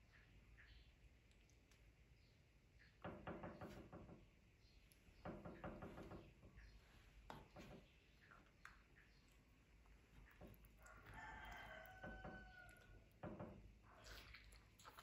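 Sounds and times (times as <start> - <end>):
wet eating clicks: 1.2 - 2.0, 8.3 - 12.1.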